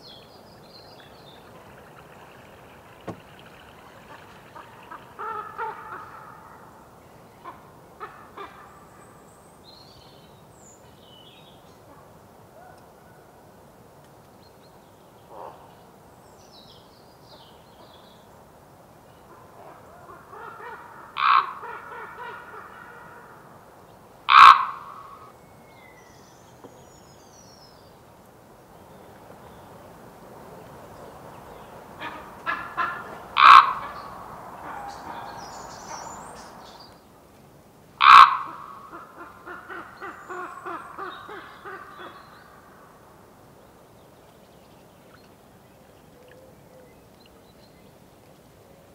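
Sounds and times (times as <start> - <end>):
rapid rattling bird notes: 0.8 - 6.0
raven calling: 0.9 - 9.0, 19.5 - 23.5, 24.3 - 25.3, 32.0 - 36.9, 38.0 - 43.0.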